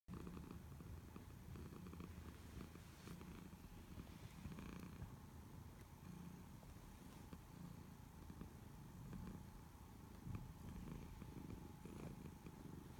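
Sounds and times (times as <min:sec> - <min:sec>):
cat purring: 0:00.1 - 0:12.9.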